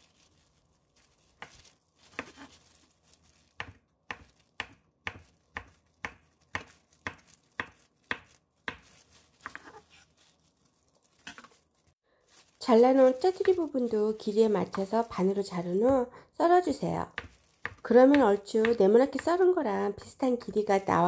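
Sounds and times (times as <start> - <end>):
knife chopping on wooden board: 3.6 - 9.9.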